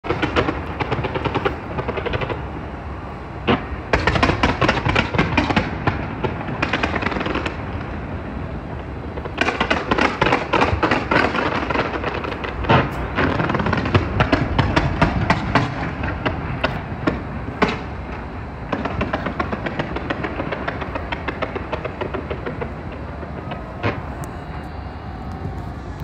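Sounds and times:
fireworks crackling: 0:00.0 - 0:26.0
firework bang: 0:00.1 - 0:02.6, 0:03.4 - 0:26.0.

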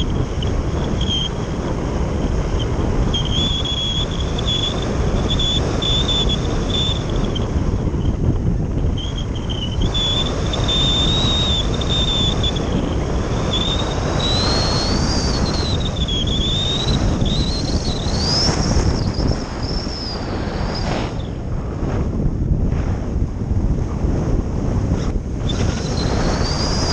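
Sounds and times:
thin high whistle: 0:00.0 - 0:01.6, 0:02.5 - 0:07.6, 0:08.9 - 0:21.4, 0:25.4 - 0:26.9
heavy wind noise: 0:00.0 - 0:26.9.

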